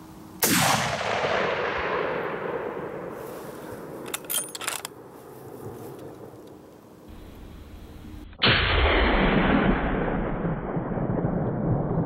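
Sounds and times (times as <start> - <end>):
rifle shot with echo: 0.4 - 4.1.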